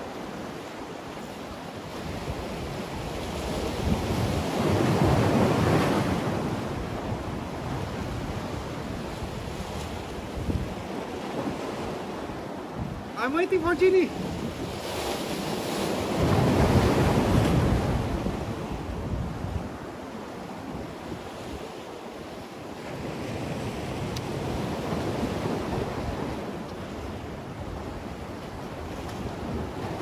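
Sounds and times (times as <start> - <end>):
sea waves washing against concrete: 0.0 - 30.0
wind buffeting microphone: 1.9 - 13.2, 14.0 - 21.7.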